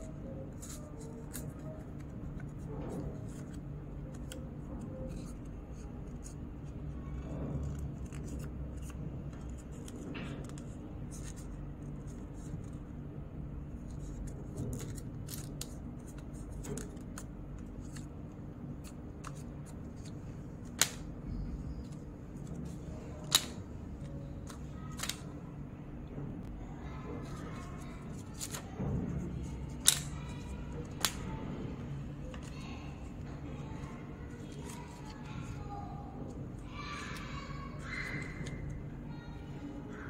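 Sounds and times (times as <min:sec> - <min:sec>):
steady low hum: 0:00.0 - 0:40.0
paper snapping: 0:19.2 - 0:21.1, 0:23.2 - 0:23.6, 0:24.4 - 0:25.2, 0:29.7 - 0:31.2.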